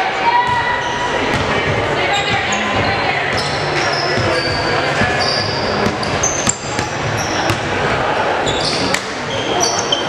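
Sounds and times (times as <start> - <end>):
murmur of voices: 0.0 - 10.0
sneakers squeaking: 0.3 - 10.0
basketball bouncing: 1.3 - 2.5, 5.8 - 7.7.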